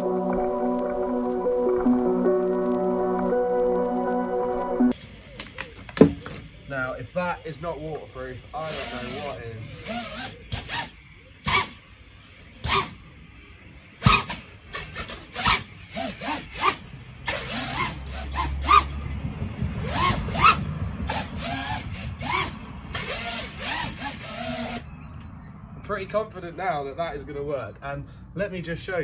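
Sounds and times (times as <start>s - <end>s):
drone motors whining: 4.9s - 25.4s.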